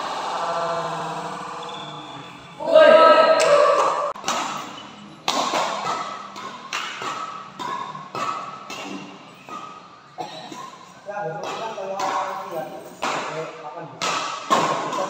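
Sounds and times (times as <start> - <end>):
rackets striking shuttlecock: 3.4 - 9.9, 10.5 - 15.0.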